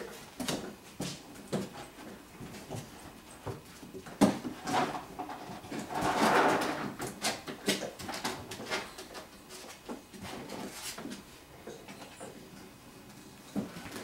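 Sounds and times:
scraping on plastic: 0:04.2 - 0:11.2.

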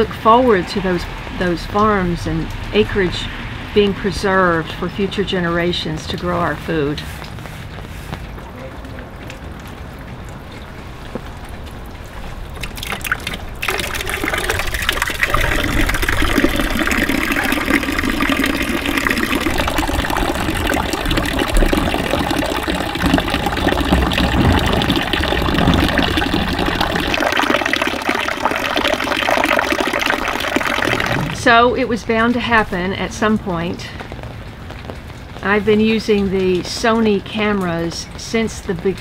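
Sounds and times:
water pouring into plastic tub: 0:09.6 - 0:31.6.

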